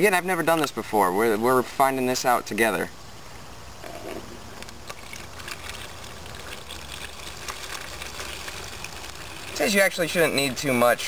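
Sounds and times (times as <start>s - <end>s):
liquid pouring and splashing: 4.8s - 10.4s.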